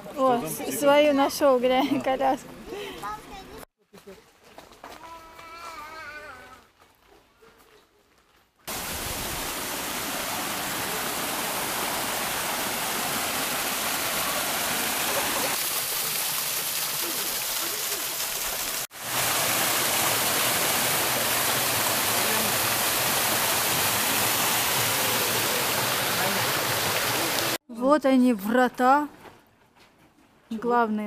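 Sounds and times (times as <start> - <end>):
water rushing through stone channel: 8.7 - 27.6
waterfall splashing: 8.7 - 27.6.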